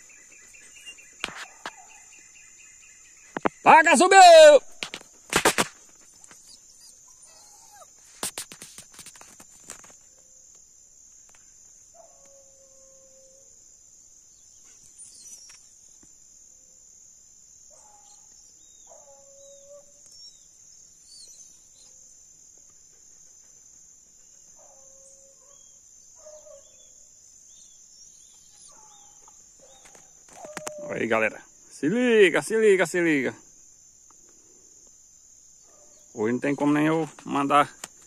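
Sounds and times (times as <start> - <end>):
distant hounds baying: 0.0 - 2.2, 6.0 - 8.0, 11.9 - 13.6, 17.7 - 31.1, 35.6 - 36.2
high insect drone: 0.0 - 38.0.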